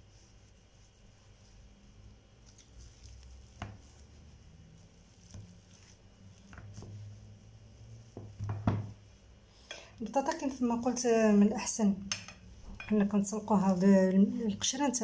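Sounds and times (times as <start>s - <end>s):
potatoes squishing: 0.0s - 8.1s, 12.6s - 15.0s
masher knocking on dish: 8.4s - 9.0s.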